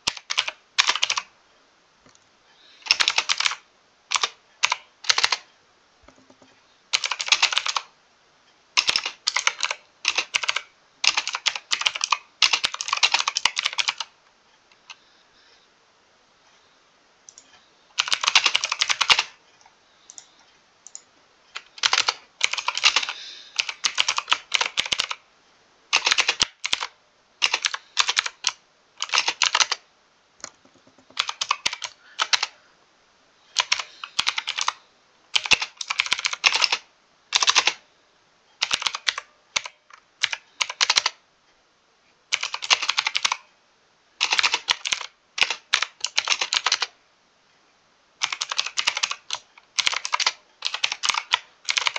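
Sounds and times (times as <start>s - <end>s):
mechanical keyboard typing: 0.0s - 1.3s, 2.8s - 7.9s, 8.8s - 14.1s, 17.3s - 19.4s, 20.9s - 25.2s, 25.9s - 29.8s, 30.4s - 32.6s, 33.5s - 37.8s, 38.6s - 41.2s, 42.3s - 43.5s, 44.2s - 47.0s, 48.2s - 51.9s.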